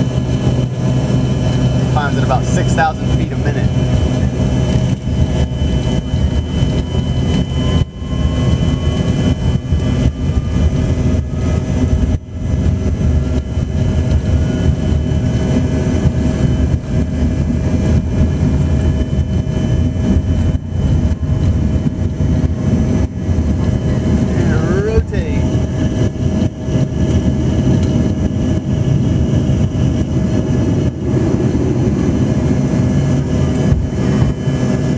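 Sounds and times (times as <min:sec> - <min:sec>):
jet engine rumble: 0:00.0 - 0:34.9
jet engine whine: 0:00.0 - 0:34.9
faint whine rising in pitch: 0:02.0 - 0:26.2.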